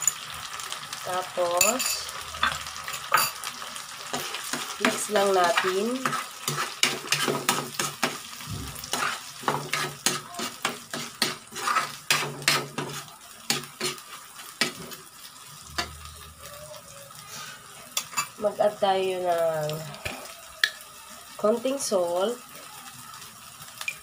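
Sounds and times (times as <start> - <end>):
food sizzling: 0.0 - 24.0
spatula scraping frying pan: 1.6 - 16.3.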